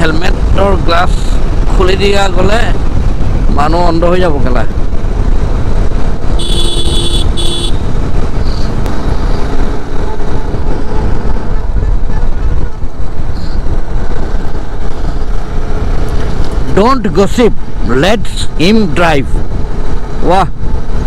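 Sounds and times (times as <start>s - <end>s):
motorcycle engine: 0.0s - 18.7s
wind noise: 0.0s - 21.0s
vehicle horn toots: 6.4s - 7.8s.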